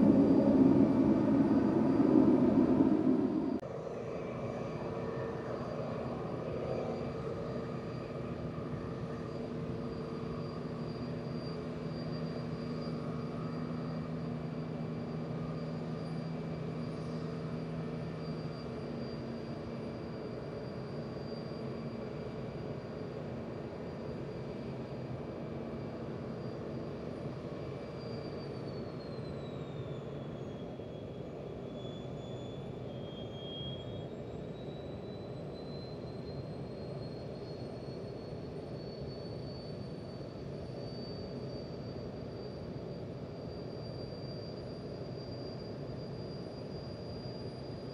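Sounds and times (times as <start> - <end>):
tug engine drone: 0.0 - 19.7
high whine of auxiliary power unit: 0.0 - 47.9.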